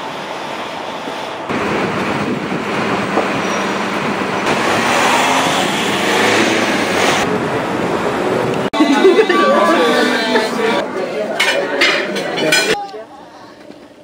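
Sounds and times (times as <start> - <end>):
rushing city traffic: 0.0 - 12.8.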